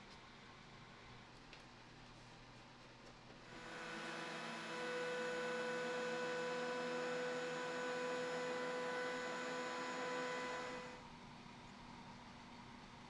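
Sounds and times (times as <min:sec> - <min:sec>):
thickness planer whine: 0:03.5 - 0:11.0.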